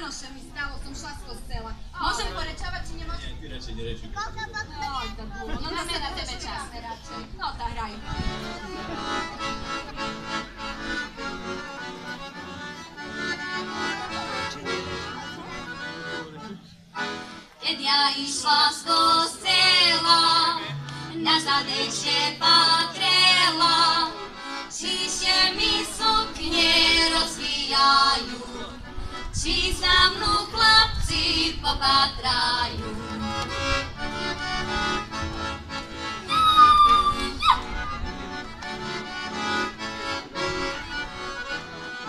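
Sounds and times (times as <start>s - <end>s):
button accordion: 4.9s - 42.0s
women singing folk song: 17.6s - 33.4s.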